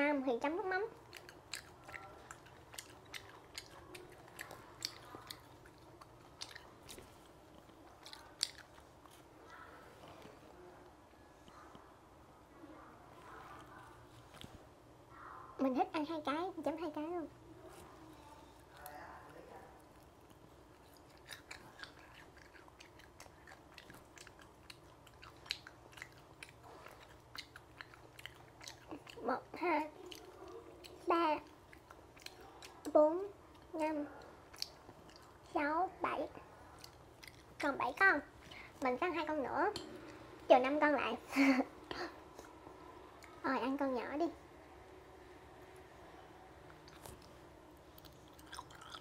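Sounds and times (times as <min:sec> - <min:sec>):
crunchy chewing: 0:01.0 - 0:10.4, 0:17.7 - 0:35.6, 0:36.3 - 0:38.8, 0:46.6 - 0:49.0.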